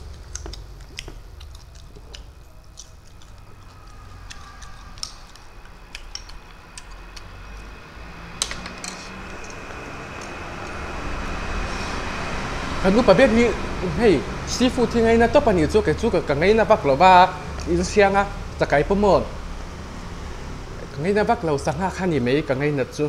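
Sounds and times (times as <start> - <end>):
crunching while eating shrimp: 0.0 - 7.8
low background rumble: 0.0 - 23.0.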